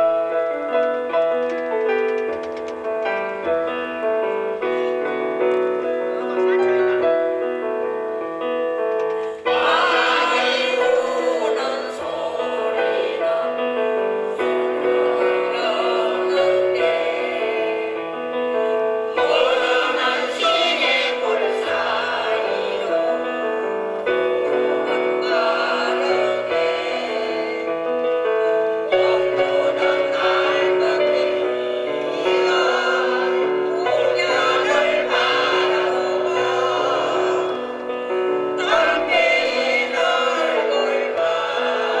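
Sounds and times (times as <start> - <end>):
mixed choir singing in harmony: 9.4 - 42.0.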